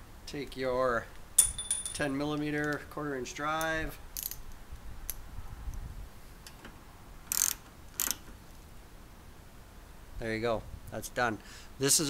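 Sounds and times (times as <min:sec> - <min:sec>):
ratchet clicking: 0:04.2 - 0:04.4, 0:07.3 - 0:08.3.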